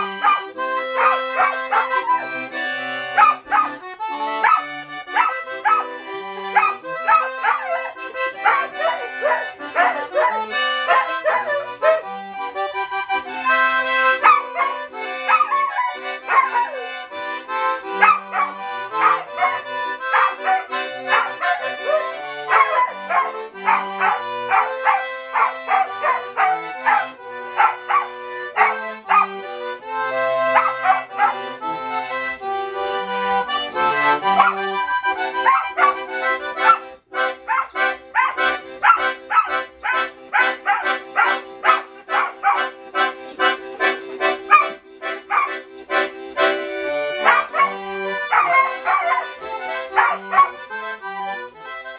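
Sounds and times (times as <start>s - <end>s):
accordion playing lively tune: 0.0s - 51.9s
dog howling: 1.0s - 2.4s, 3.2s - 3.8s, 4.4s - 5.8s, 6.6s - 12.0s, 14.2s - 16.9s, 18.0s - 29.3s, 30.6s - 31.4s, 35.4s - 36.0s, 37.5s - 42.6s, 45.3s - 45.5s, 47.2s - 50.6s.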